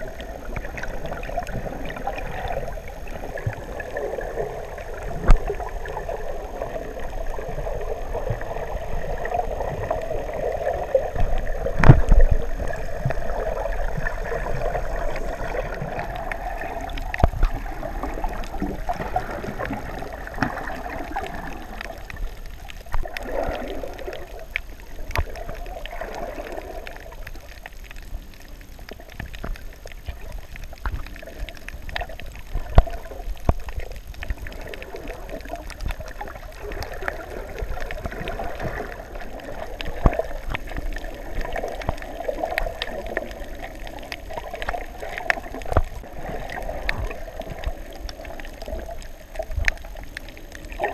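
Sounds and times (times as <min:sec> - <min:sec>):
muffled underwater wash: 0:00.0 - 0:50.9
underwater clicks and knocks: 0:05.2 - 0:05.8, 0:11.1 - 0:26.3, 0:28.8 - 0:50.9.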